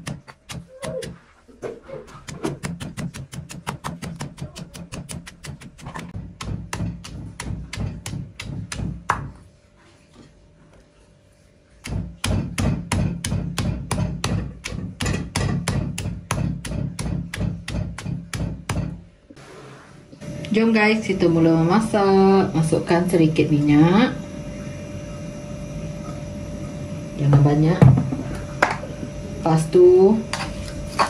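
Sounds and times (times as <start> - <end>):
pestle pounding in stone mortar: 0.0 - 1.2, 2.0 - 9.4, 11.8 - 19.1.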